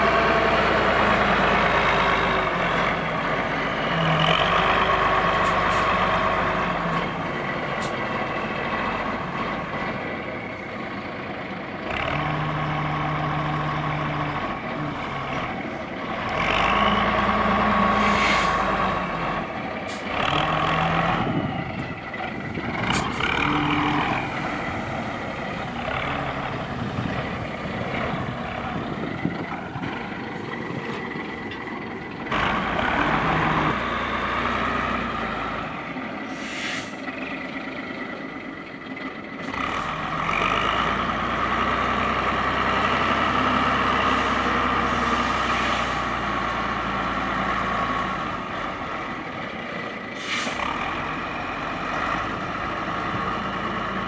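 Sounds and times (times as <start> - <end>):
diesel engine working under load: 0.0 - 54.0
brief hisses: 36.3 - 37.0, 50.2 - 50.6.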